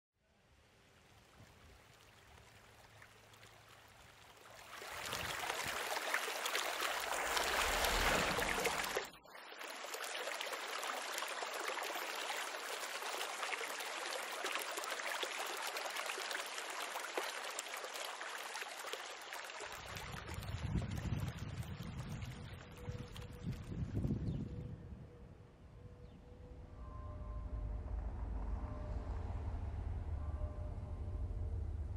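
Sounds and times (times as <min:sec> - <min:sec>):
fountain water splashing: 0:00.7 - 0:23.8
low rumble: 0:07.2 - 0:09.2, 0:26.2 - 0:31.9.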